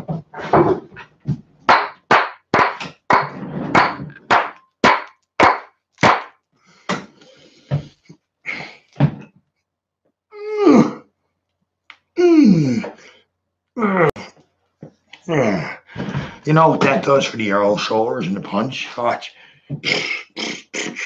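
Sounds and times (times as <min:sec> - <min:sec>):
sharp knocks: 0:01.7 - 0:07.1.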